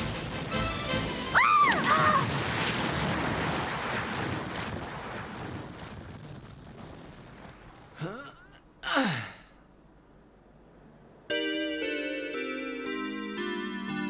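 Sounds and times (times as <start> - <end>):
rising and falling wail: 1.3 - 2.3
grenade explosion: 1.6 - 8.0.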